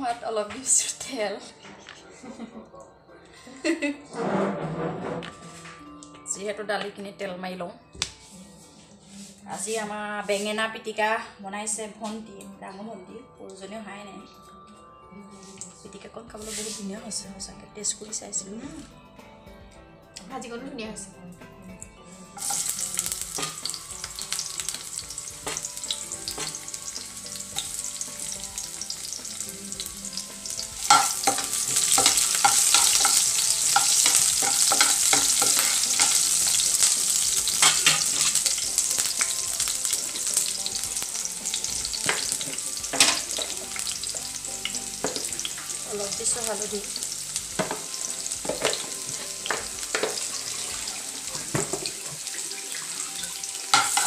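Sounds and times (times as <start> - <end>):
onions sizzling in oil: 22.4 - 54.0
spatula scraping a pan: 30.8 - 39.2.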